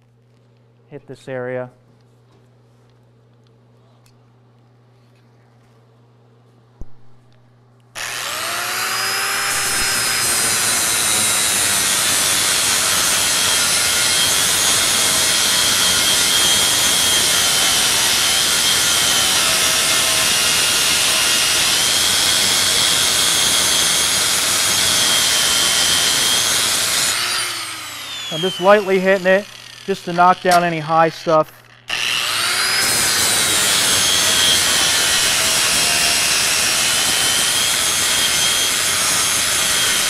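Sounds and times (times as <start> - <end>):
angle grinder sanding with high whine: 8.0 - 40.0.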